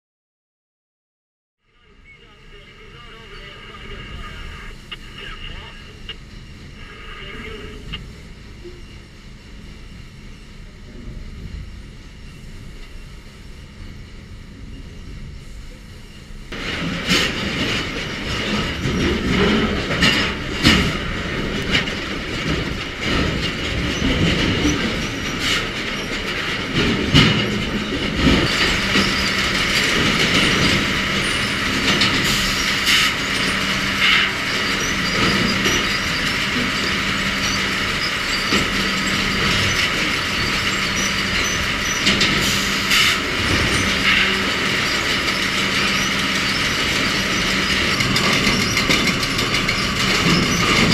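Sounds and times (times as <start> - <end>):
machine hum: 1.6 - 50.9
chain conveyors clanking and rattling: 16.6 - 50.9.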